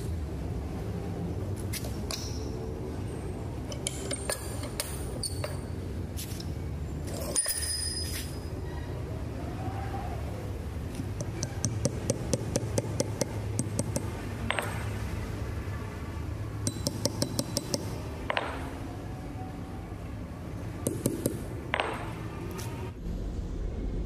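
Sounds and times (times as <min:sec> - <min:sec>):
hammer tapping steel punch: 0:11.2 - 0:14.8, 0:16.6 - 0:18.7.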